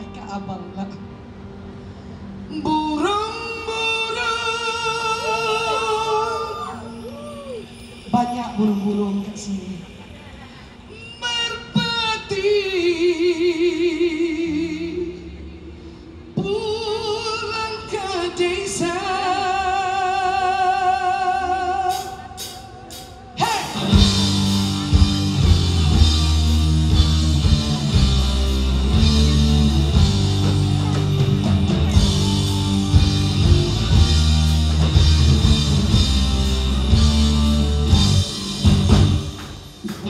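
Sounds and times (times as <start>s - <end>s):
rock band playing: 21.9s - 40.0s.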